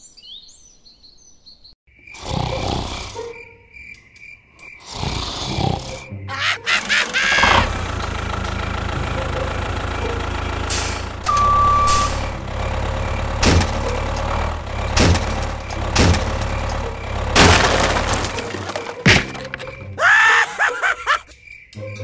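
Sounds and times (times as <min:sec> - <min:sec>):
heavy vehicle engine running: 0:06.7 - 0:19.8
short beep: 0:11.3 - 0:12.3.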